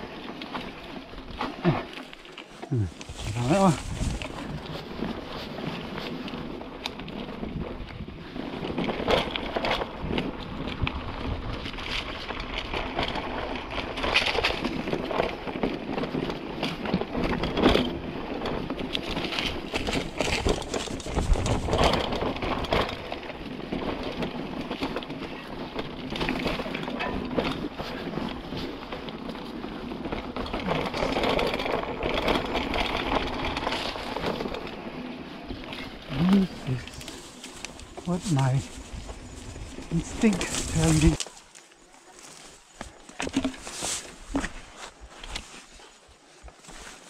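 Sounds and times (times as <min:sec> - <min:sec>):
bike tyre and wind noise: 0:00.0 - 0:47.0
bike knocks and rattles: 0:03.0 - 0:35.0, 0:42.3 - 0:45.6.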